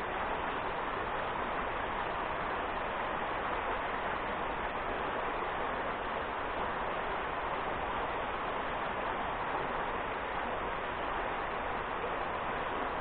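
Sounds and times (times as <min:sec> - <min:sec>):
water rushing over rocks: 0:00.0 - 0:13.0.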